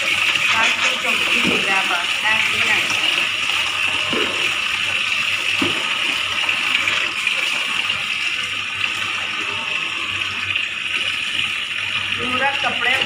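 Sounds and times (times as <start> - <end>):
water splash: 0.0 - 8.0
water pouring from tap: 0.0 - 13.0.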